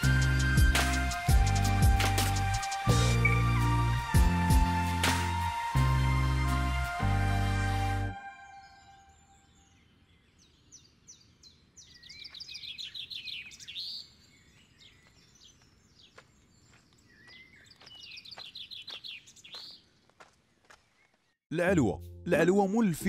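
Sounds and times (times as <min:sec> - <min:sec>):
bird chirps: 0:08.4 - 0:21.4
small birds trilling songs: 0:08.5 - 0:21.4.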